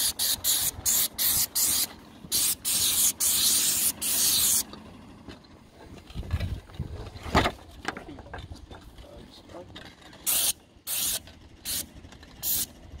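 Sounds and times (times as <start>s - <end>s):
paint spray gun hissing: 0.0s - 4.7s, 10.3s - 12.7s.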